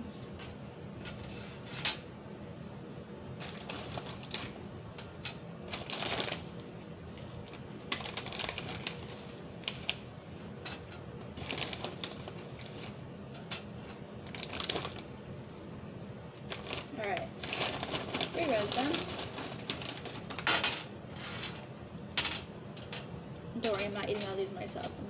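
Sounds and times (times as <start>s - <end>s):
bag rustling: 11.4s - 13.0s, 16.5s - 20.5s
pretzels clicking on metal sheet: 16.5s - 20.9s.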